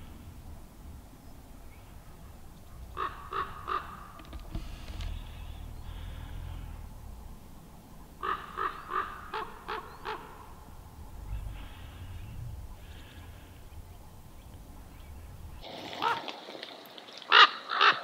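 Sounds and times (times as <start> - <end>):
low rumble: 0.0 - 15.6
crow cawing: 2.9 - 4.3, 8.2 - 10.6, 17.3 - 18.0.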